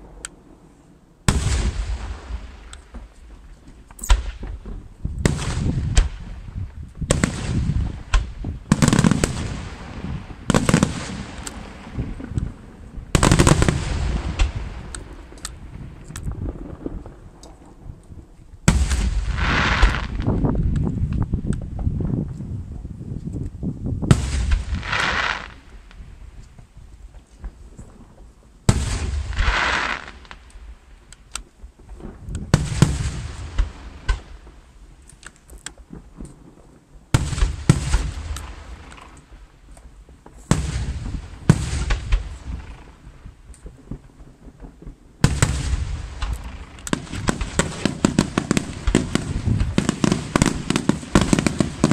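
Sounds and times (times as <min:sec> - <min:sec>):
firework hissing crackle: 0:18.7 - 0:20.4, 0:24.2 - 0:26.4, 0:28.7 - 0:31.0
firework shells bursting: 0:45.2 - 0:51.9.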